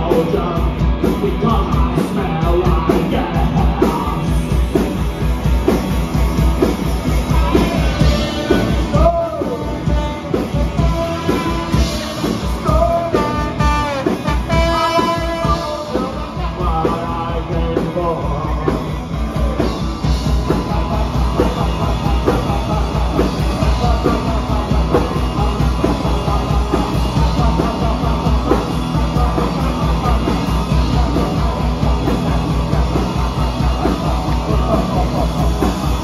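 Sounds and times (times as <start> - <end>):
bass guitar: 0.0 - 36.0
electric guitars: 0.0 - 36.0
drum beat: 0.1 - 36.0
trumpet: 13.1 - 16.5.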